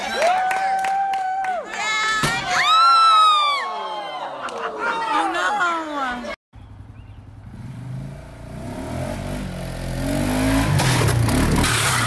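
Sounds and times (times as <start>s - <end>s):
atv engine revving: 6.6s - 12.0s.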